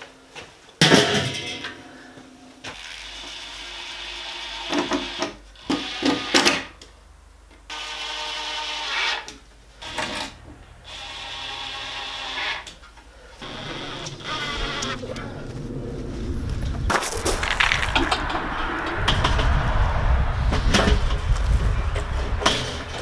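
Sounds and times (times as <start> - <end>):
knocks and clatter: 16.5 - 23.0.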